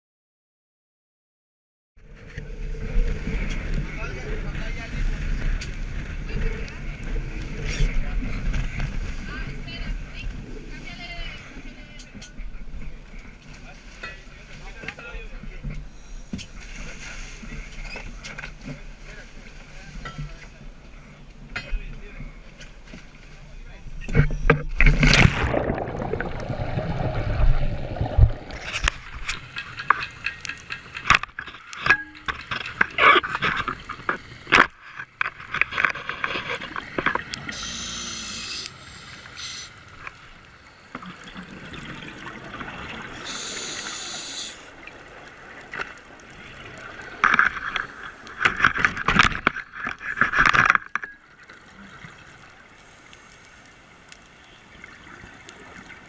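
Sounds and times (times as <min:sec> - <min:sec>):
muffled underwater wash: 0:02.0 - 0:32.7, 0:33.4 - 0:56.0
loud water splash: 0:24.8 - 0:29.4
loud bubbling bursts: 0:24.9 - 0:29.2
regulator bubbles hissing: 0:25.1 - 0:29.4, 0:37.4 - 0:39.9, 0:40.7 - 0:45.0.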